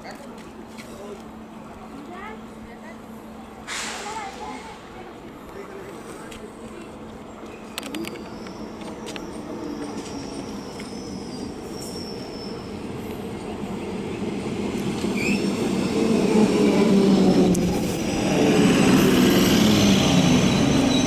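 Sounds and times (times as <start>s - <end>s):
train wheels and motors rumbling: 0.0s - 21.0s
wheel squeal: 8.2s - 12.8s, 15.1s - 15.6s, 20.2s - 21.0s.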